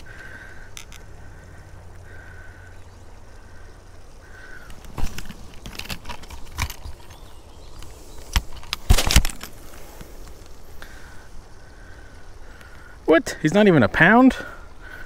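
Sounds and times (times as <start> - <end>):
metal clicks and rattles: 4.7 - 9.6.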